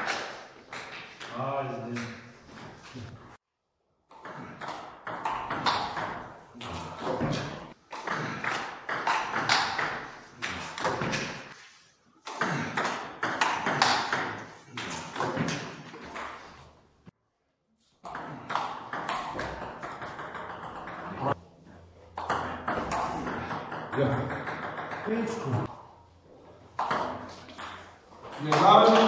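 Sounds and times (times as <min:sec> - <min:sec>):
ping pong ball hitting paddles: 0:04.1 - 0:11.6, 0:12.2 - 0:16.6, 0:18.0 - 0:21.4, 0:22.1 - 0:25.7, 0:26.7 - 0:29.0
ping pong ball bouncing on table: 0:04.2 - 0:06.2, 0:08.1 - 0:10.0, 0:18.1 - 0:21.3, 0:22.2 - 0:25.3, 0:26.8 - 0:27.9.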